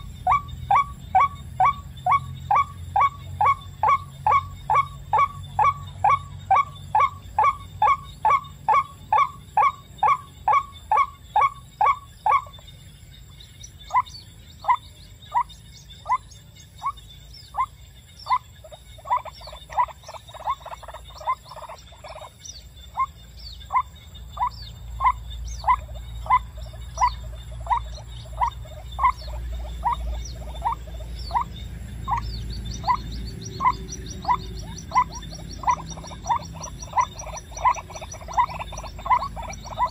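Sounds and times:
waterhen calling: 0.0s - 12.7s, 13.8s - 39.9s.

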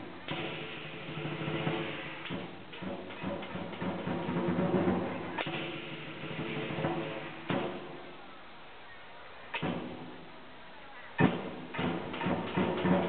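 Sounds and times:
clashing cymbals: 0.0s - 8.1s
drum beating: 0.0s - 8.2s, 11.2s - 13.0s.

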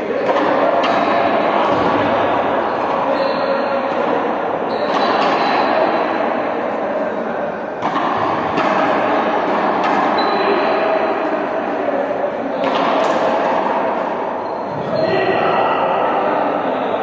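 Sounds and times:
echoing sports hall din: 0.0s - 17.0s.

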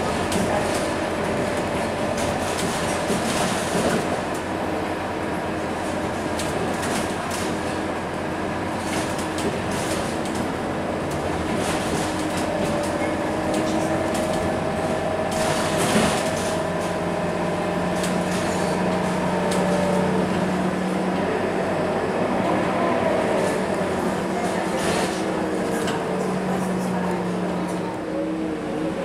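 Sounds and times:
bus engine whining: 0.0s - 29.0s.

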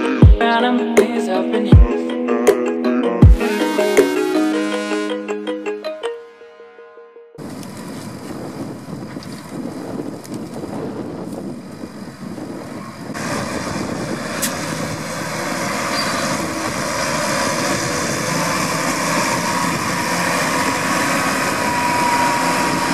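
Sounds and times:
tractor engine running: 7.4s - 22.9s
wind noise: 7.4s - 22.9s.

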